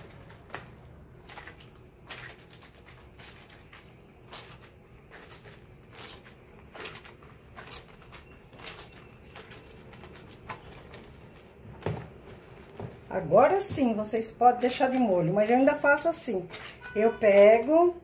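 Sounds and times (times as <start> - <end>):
towel splashing and squelching: 0.0 - 11.3.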